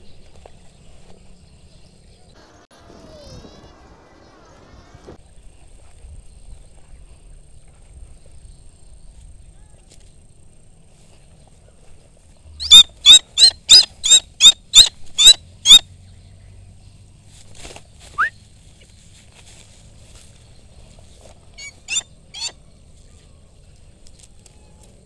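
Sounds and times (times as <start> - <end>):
eagle shrill calls: 12.6 - 15.8, 21.6 - 22.6.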